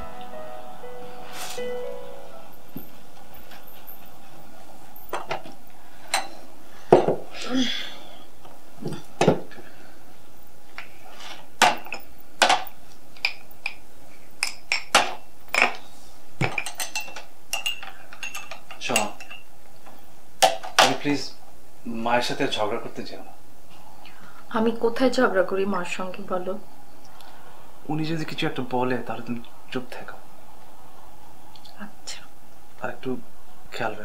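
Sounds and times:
brief scrape on table: 1.3s - 1.6s
crockery and cutlery clinking: 5.0s - 7.3s, 14.4s - 15.8s, 16.4s - 19.5s.

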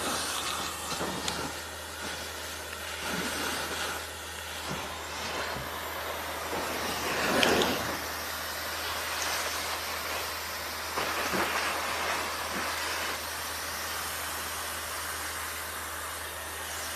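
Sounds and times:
hair dryer running: 0.0s - 16.9s.

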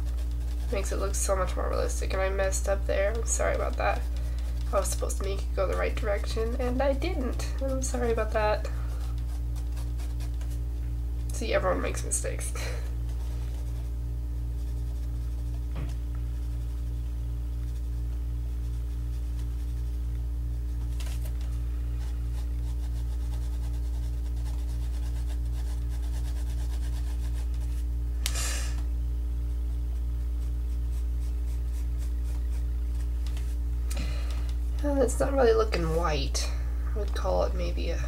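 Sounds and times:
pencil scratching on paper: 0.0s - 10.6s, 14.5s - 15.7s, 22.0s - 27.8s, 30.4s - 33.6s
low throbbing hum: 0.0s - 38.0s.

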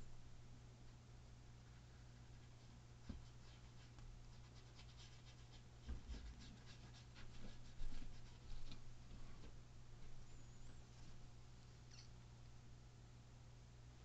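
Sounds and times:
steady low hum: 0.0s - 14.0s
paintbrush strokes on canvas: 2.3s - 9.5s.

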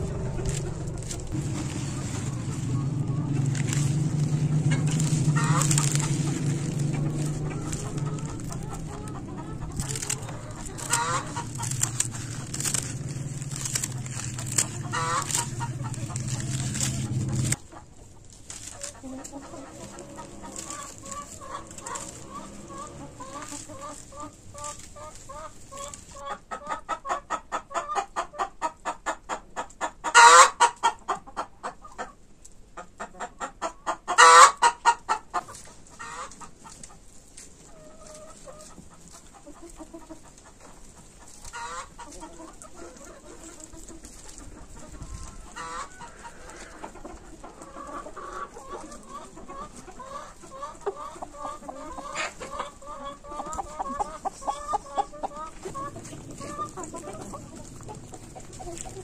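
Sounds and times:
low hum: 0.0s - 17.6s
chickens clucking: 0.0s - 59.0s
drawn-out chicken calls: 0.0s - 59.0s.

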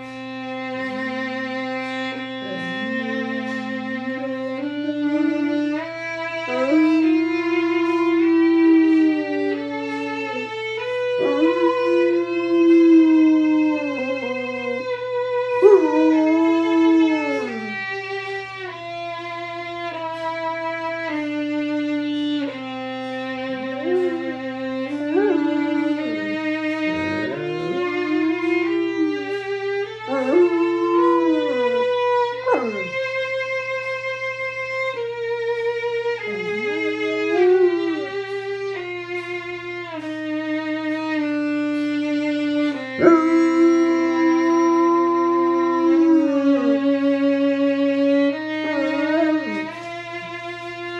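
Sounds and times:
violin playing slow notes: 0.0s - 50.9s
dog howling: 0.5s - 19.0s, 21.0s - 39.2s, 40.7s - 50.9s.

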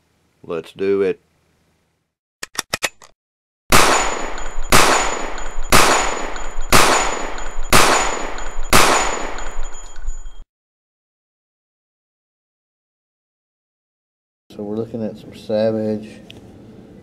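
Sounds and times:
gunshots with echo: 3.7s - 9.8s
high ringing tone: 4.1s - 10.5s.

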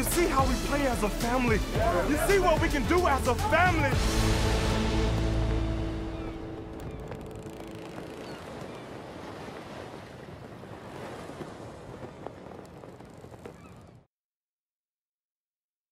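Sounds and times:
flag flapping: 5.1s - 14.1s.

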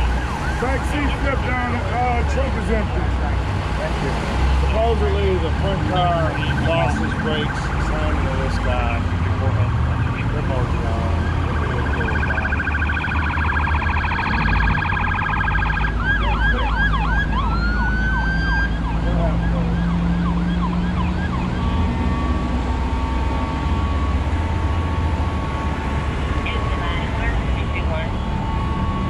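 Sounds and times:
emergency vehicle siren: 0.0s - 29.0s.

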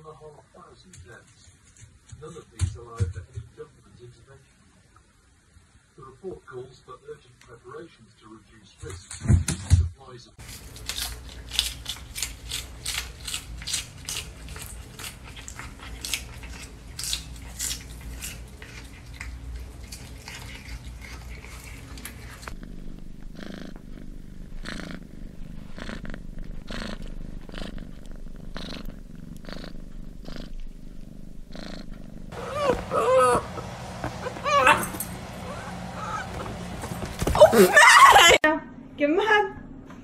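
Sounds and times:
cat crunching lettuce: 10.4s - 23.0s
cat purring: 13.7s - 37.4s.

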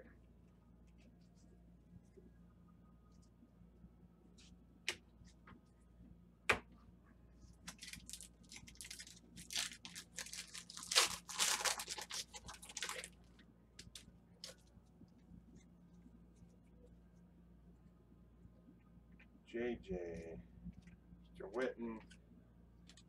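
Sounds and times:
foil wrapper tearing and crinkling: 7.6s - 14.7s.

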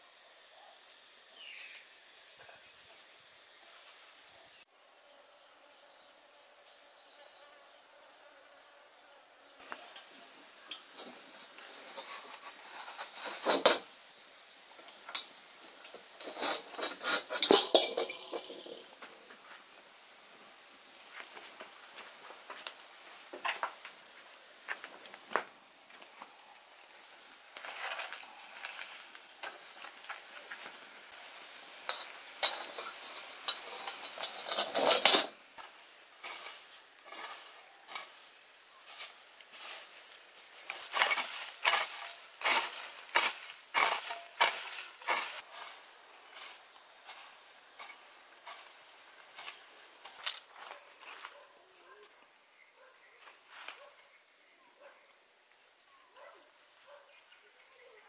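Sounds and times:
sizzling hiss: 0.0s - 4.7s, 5.7s - 50.4s
firewood crackling: 0.8s - 4.0s, 9.6s - 52.2s
clicks and scrapes on grill: 9.6s - 14.2s, 14.8s - 51.4s
metal clank of wok: 16.2s - 19.0s, 31.8s - 35.4s.

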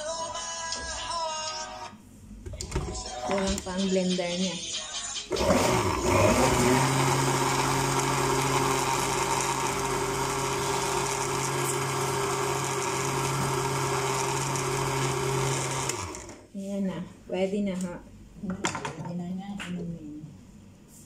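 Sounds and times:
blender motor whine: 5.3s - 16.4s.

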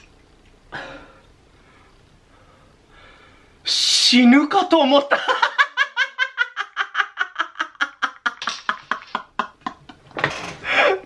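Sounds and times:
man laughing hard: 5.1s - 10.1s.

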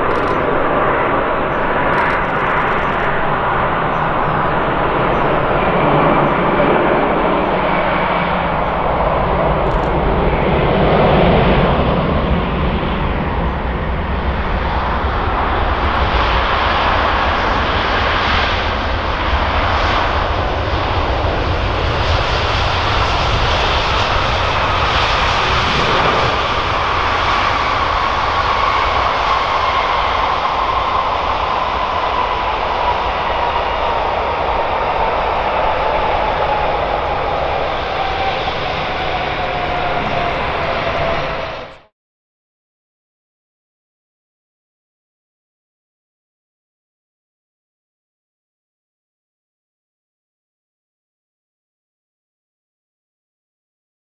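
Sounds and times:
jet engine noise rushing: 0.0s - 41.9s.

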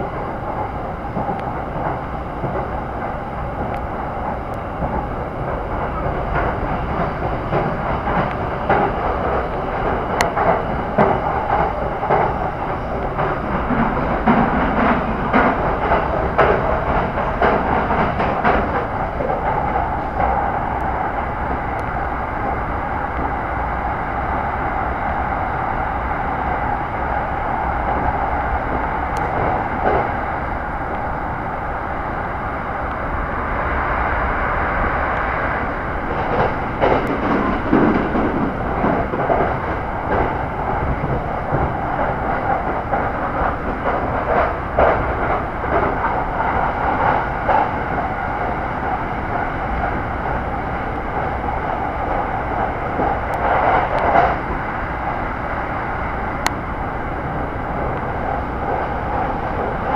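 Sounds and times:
train wheels and motors rumbling: 0.0s - 59.9s
clattering over the track: 0.1s - 22.6s, 27.8s - 30.2s, 35.1s - 54.6s.

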